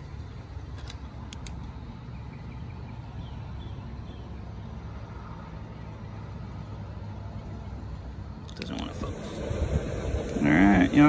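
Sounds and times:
low outdoor rumble: 0.0 - 11.0
sharp click: 0.7 - 1.8.

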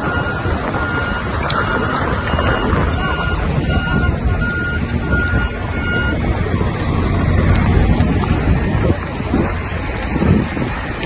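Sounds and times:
electronic beeps: 0.0 - 6.3
wind buffeting microphone: 0.0 - 11.0.

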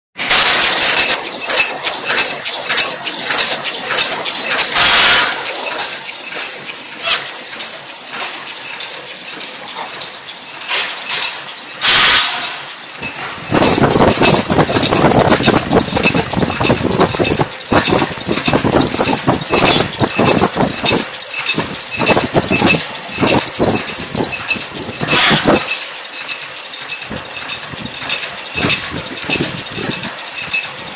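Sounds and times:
machine mechanical clatter: 0.2 - 30.9
burst of hiss: 10.7 - 12.7.

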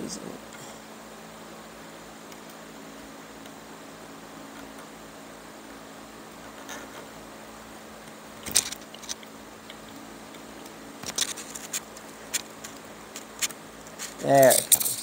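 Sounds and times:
faint steady hum: 0.0 - 15.0
chair cane clicking and scraping: 11.0 - 15.0.

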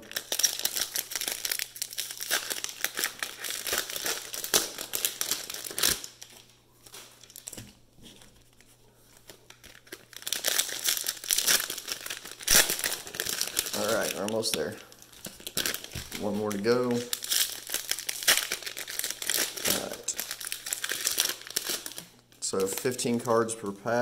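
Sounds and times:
cellophane crinkling and tearing: 0.0 - 23.2.

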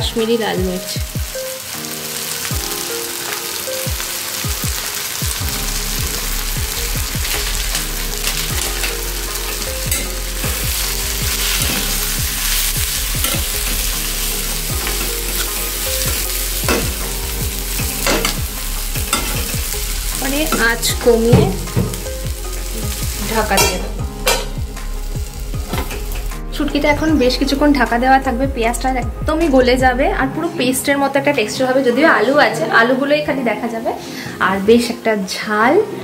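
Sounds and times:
vegetables sizzling in oil: 0.0 - 26.6.

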